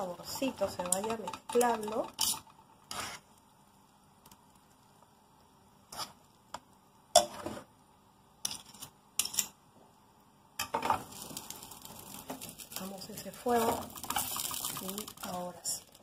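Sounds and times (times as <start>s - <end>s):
forks scraping frying pan: 0.3s - 3.2s.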